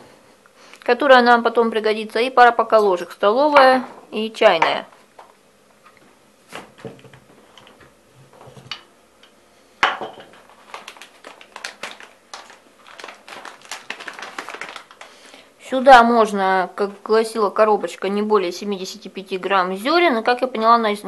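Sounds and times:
plastic rattles: 0:10.1 - 0:15.1.

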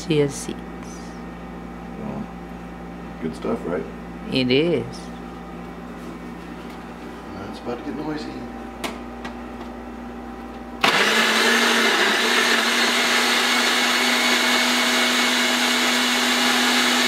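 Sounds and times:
blender motor running: 0:10.8 - 0:17.0.

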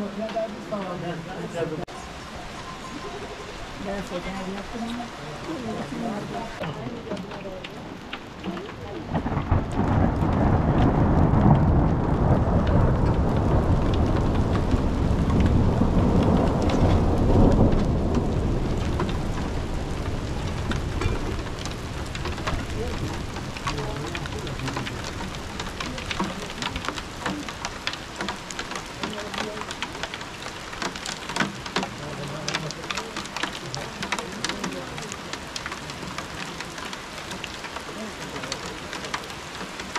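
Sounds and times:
rain pattering: 0:00.0 - 0:39.9
rolling thunder: 0:08.7 - 0:31.1.

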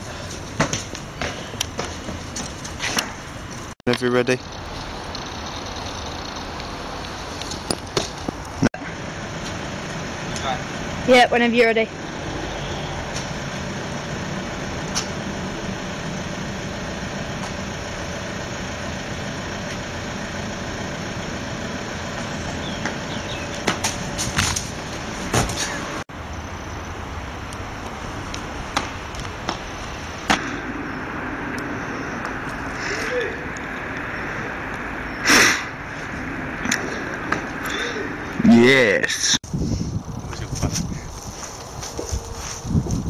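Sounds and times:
footfalls on paving slabs: 0:00.0 - 0:03.8, 0:22.8 - 0:26.0, 0:27.8 - 0:30.5
low traffic hum: 0:00.0 - 0:43.0.

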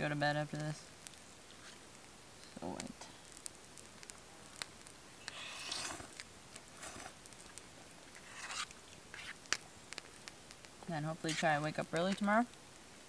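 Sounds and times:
fork scraping a plate: 0:05.4 - 0:06.1, 0:08.2 - 0:09.4.

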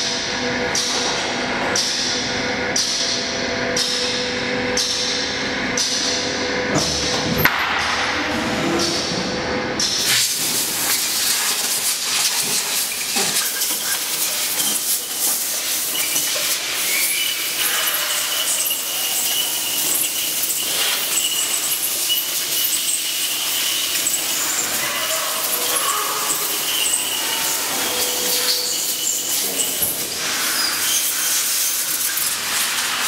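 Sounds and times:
high-pitched whine: 0:00.0 - 0:33.0
compressed air hissing: 0:10.0 - 0:33.0.

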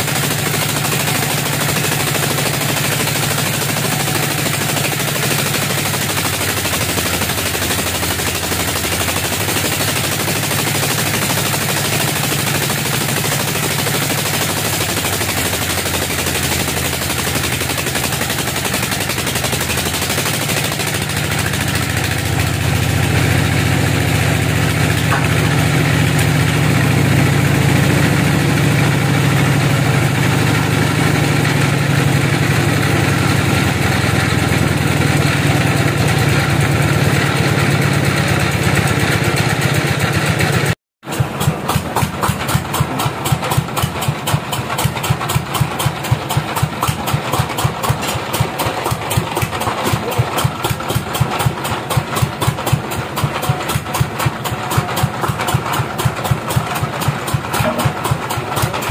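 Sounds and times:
bandsaw and engine humming: 0:00.0 - 0:58.9
engine idling: 0:00.0 - 0:58.9.

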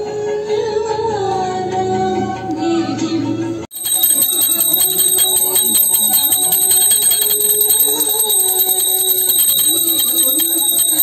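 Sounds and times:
brass hand bell ringing: 0:03.7 - 0:11.0.

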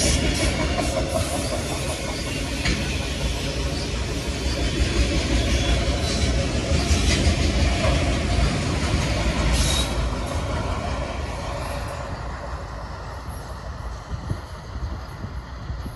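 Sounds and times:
high wheel squeal: 0:00.0 - 0:07.2, 0:09.4 - 0:10.4
train wheels rumbling on rail: 0:00.0 - 0:15.9.

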